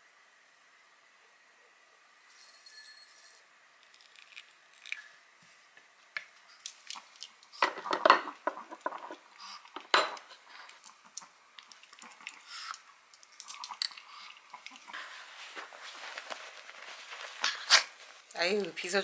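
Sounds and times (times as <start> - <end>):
dog eating from bowl: 6.6 - 17.7
ceramic bowls clinking: 9.8 - 10.3.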